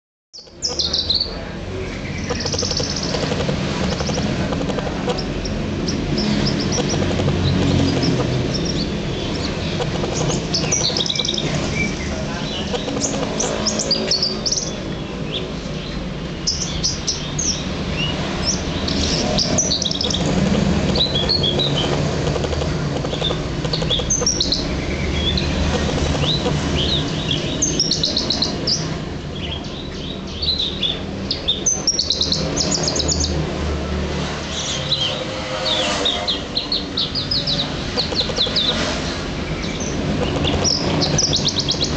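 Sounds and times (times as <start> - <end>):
bird chirping and trilling: 0.4 - 33.5, 34.4 - 41.9
steady low rumble: 0.8 - 29.5.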